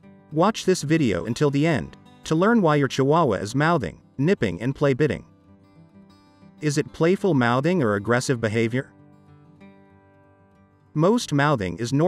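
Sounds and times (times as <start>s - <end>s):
quiet guitar background music: 0.0s - 12.0s.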